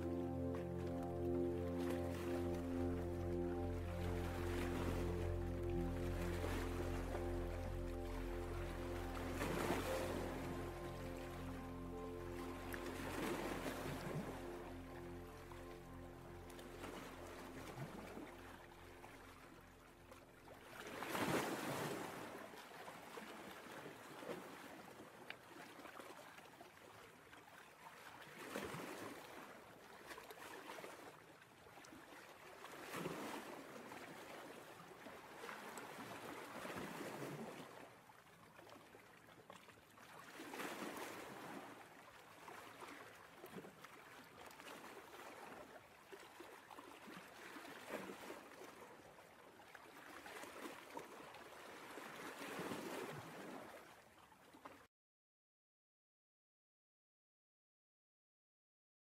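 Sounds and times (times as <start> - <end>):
faint ocean surf: 0.0 - 25.6, 50.0 - 54.0.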